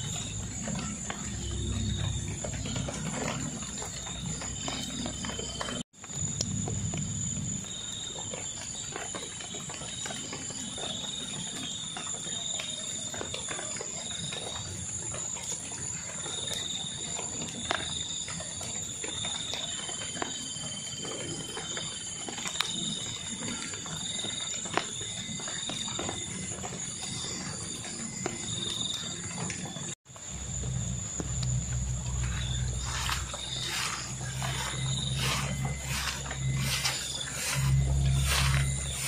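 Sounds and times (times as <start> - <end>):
insects high whine: 0.0 - 13.0, 16.5 - 39.0
insect chirring: 30.2 - 39.0.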